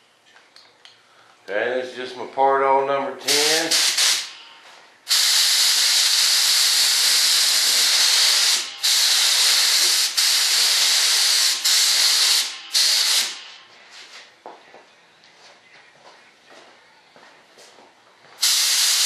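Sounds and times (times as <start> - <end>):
spray gun hissing: 3.3 - 4.4, 5.1 - 13.5, 18.4 - 19.0.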